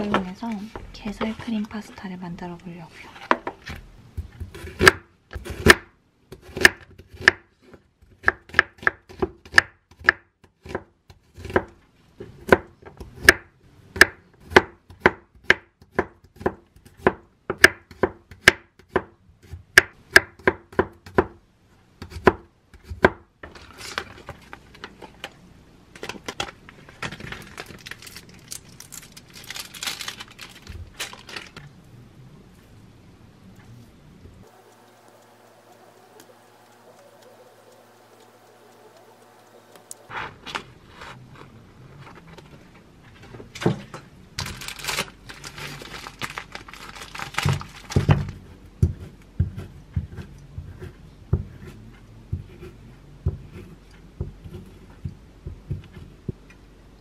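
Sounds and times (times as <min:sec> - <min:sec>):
knife chopping on wooden board: 0:04.2 - 0:11.8, 0:47.4 - 0:56.1.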